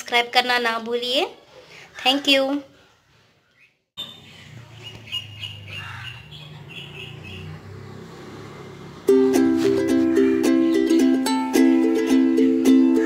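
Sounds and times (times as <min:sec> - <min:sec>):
birds chirping: 0:03.4 - 0:09.0.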